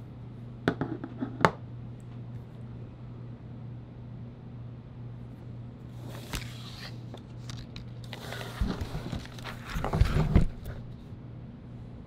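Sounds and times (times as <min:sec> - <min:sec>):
objects rustling on a tabletop: 0:06.0 - 0:10.8.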